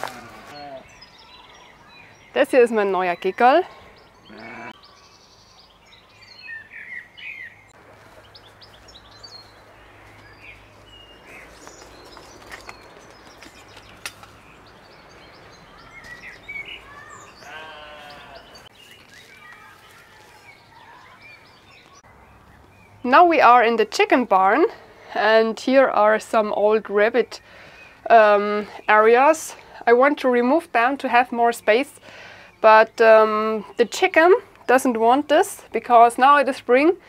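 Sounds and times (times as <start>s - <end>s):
farm animal call: 0.0s - 1.0s, 4.2s - 4.8s, 16.7s - 18.7s
small birds chirping: 0.0s - 37.0s.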